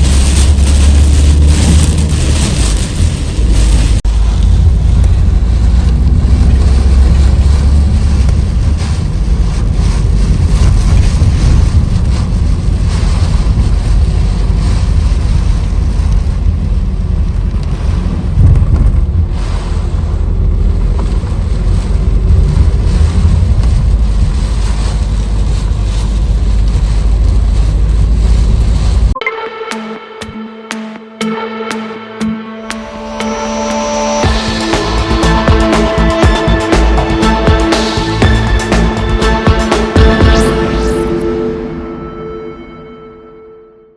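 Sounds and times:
wind buffeting microphone: 0.0 - 29.1
strong wind and rain: 0.0 - 29.2.

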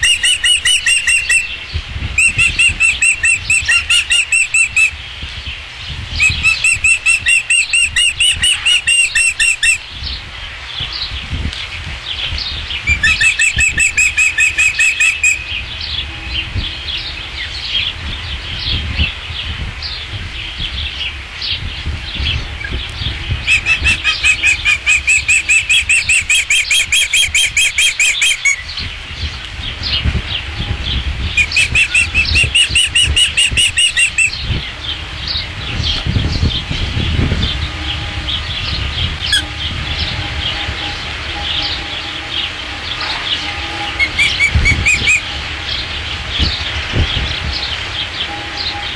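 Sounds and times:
ospreys whistling: 0.0 - 1.6, 2.2 - 4.9, 6.2 - 9.8, 12.9 - 15.6, 23.4 - 28.7, 31.4 - 34.4, 43.4 - 45.4
low wind rumble: 0.0 - 48.9.

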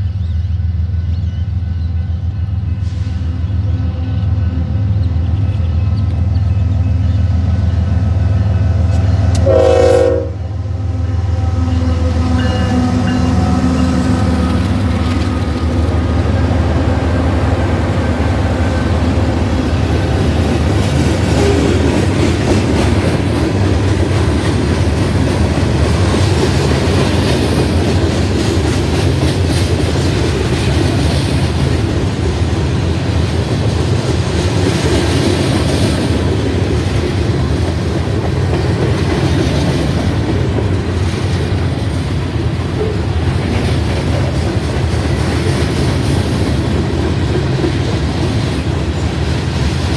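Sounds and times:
diesel locomotive droning: 0.0 - 49.9
train horn blast: 9.3 - 16.6, 21.3 - 22.0
train wheels clattering on rails: 11.8 - 49.9.

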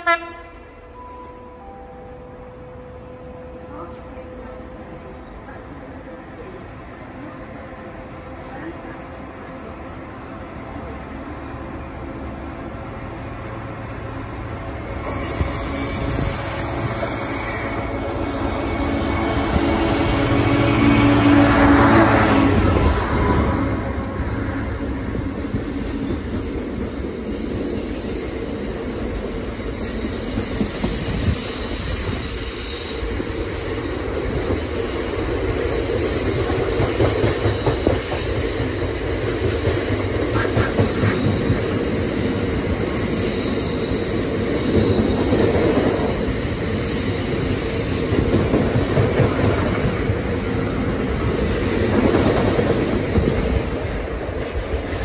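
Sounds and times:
train wheels rumbling on rails: 3.0 - 55.0
high wheel squeals: 15.0 - 19.7, 25.2 - 28.4, 38.9 - 45.6, 46.2 - 48.8.

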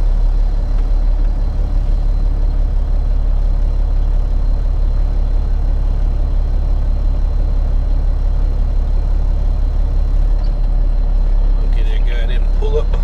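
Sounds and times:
diesel engine low drone: 0.0 - 13.0.

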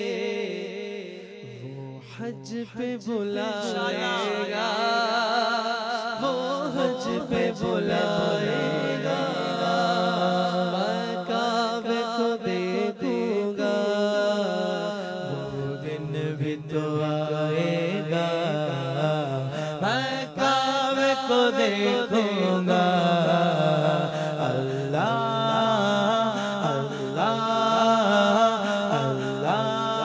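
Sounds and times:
solo voice singing: 0.0 - 30.0.

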